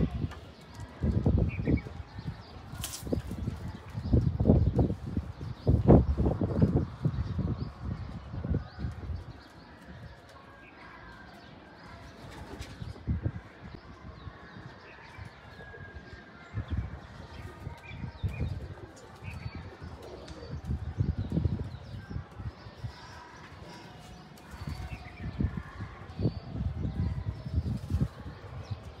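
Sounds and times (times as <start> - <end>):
wings flapping: 2.7 - 3.7.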